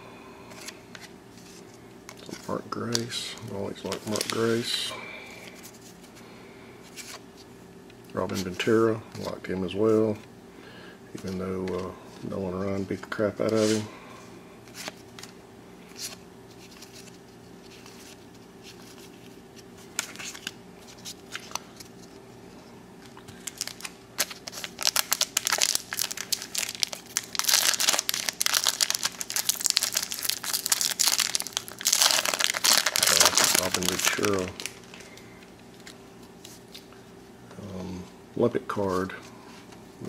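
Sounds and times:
foil wrapper crinkling and tearing: 23.3s - 36.0s.

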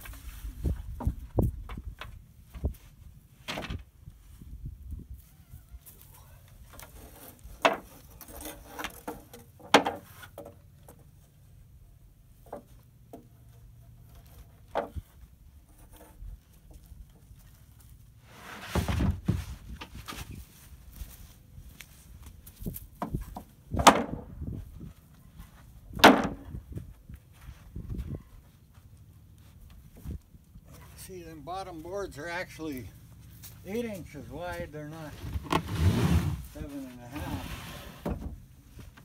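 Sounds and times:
wooden clacks and knocks: 8.7s - 11.0s, 23.0s - 24.3s, 26.0s - 26.5s
board knocking on stack: 26.0s - 26.4s.

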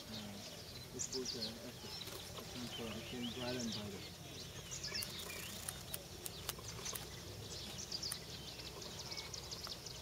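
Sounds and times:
many birds chirping: 0.0s - 10.0s
sharp clicks: 4.9s - 7.1s, 8.0s - 8.3s.

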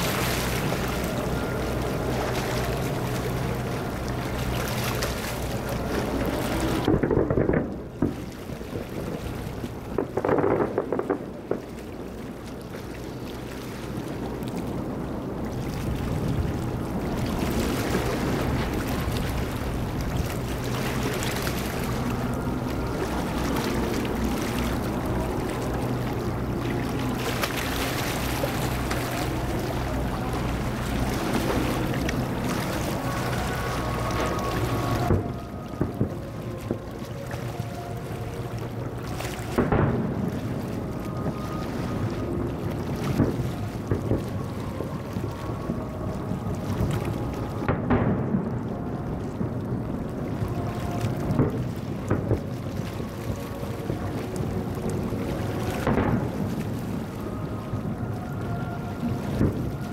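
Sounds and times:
low hum: 0.0s - 59.9s
distant fireworks booms: 6.9s - 8.2s, 9.9s - 11.8s, 39.6s - 40.6s, 47.7s - 48.7s, 55.8s - 56.6s.

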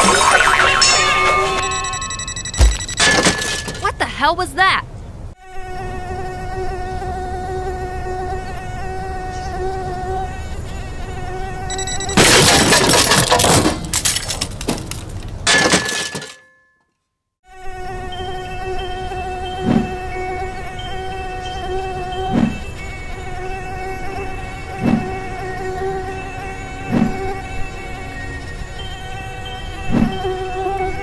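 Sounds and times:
soft thump: 2.6s - 3.0s.

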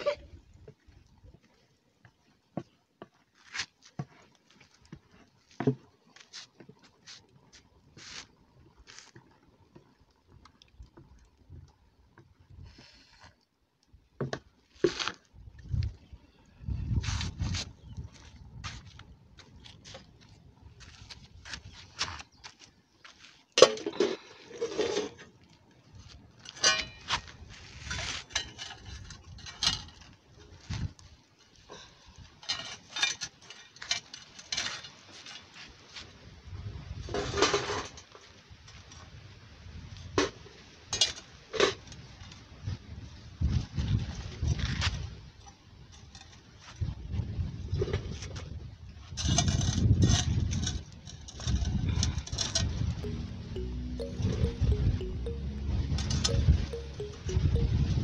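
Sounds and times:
metal pans and shovel clanking: 26.6s - 27.2s.

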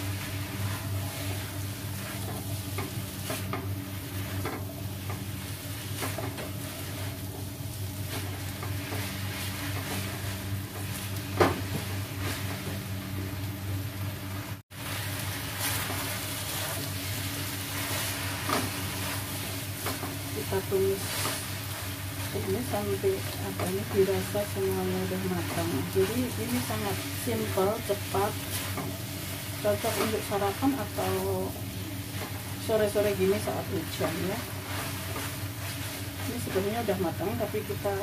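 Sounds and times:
noodles sizzling in a wok: 0.0s - 38.0s
spatula scraping a pan: 14.9s - 30.4s, 33.9s - 36.6s.

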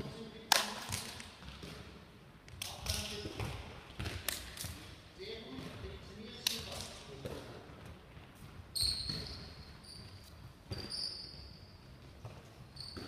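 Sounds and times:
rubber soles squeaking: 8.7s - 13.0s.

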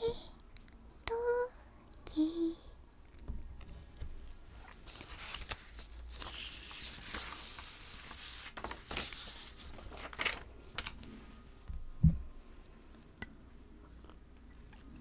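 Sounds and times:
paper and fabric rustling: 3.6s - 11.5s.

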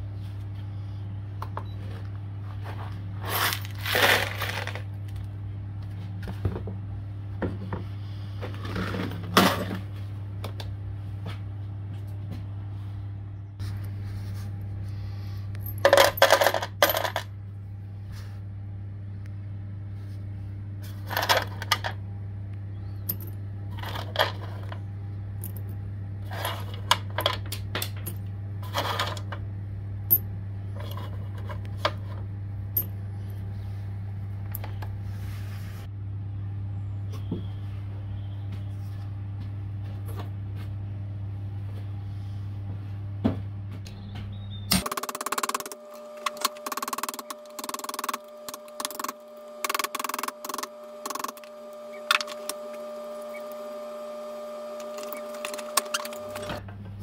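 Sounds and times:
steady low hum: 0.0s - 57.0s
small metal pieces clinking: 3.4s - 4.8s.

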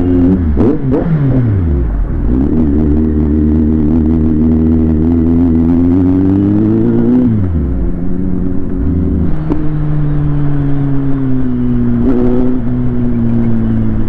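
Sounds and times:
motorcycle engine revving: 0.0s - 14.0s.

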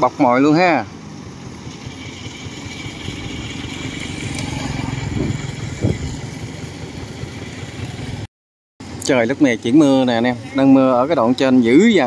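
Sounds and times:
engine chugging: 0.2s - 8.3s.

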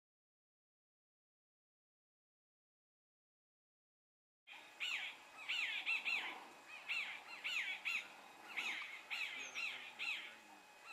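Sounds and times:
birds calling: 4.5s - 10.9s
quieter background bird calls: 4.5s - 10.9s.

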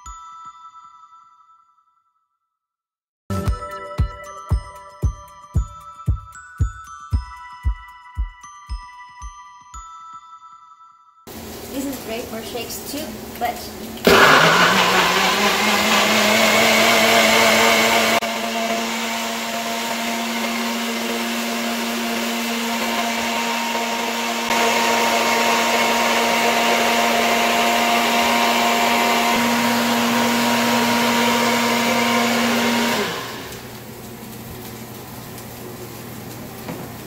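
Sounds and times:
electric blender running: 13.0s - 37.0s.

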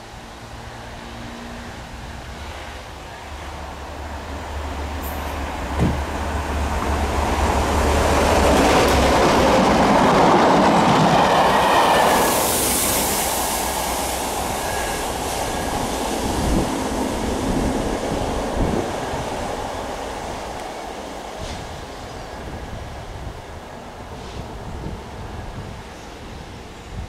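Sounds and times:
diesel locomotive engine drone: 0.0s - 27.0s
train hiss: 0.0s - 27.0s
wheels rushing on rails: 0.0s - 27.0s.

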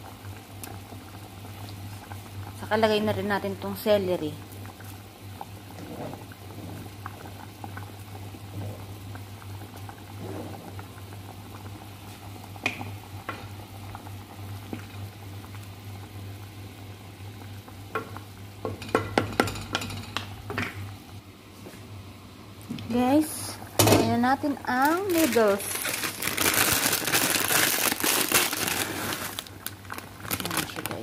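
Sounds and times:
soup bubbling in pot: 0.0s - 21.3s, 25.8s - 30.4s.

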